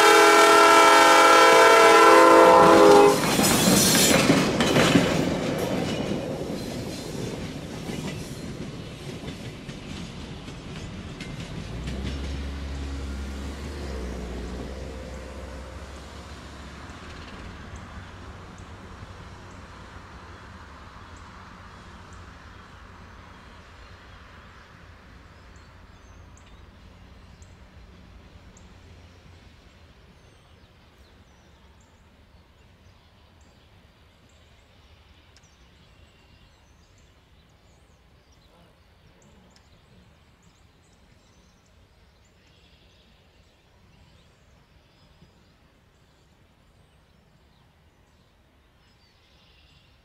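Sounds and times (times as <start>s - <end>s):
diesel locomotive engine running: 0.0s - 30.2s.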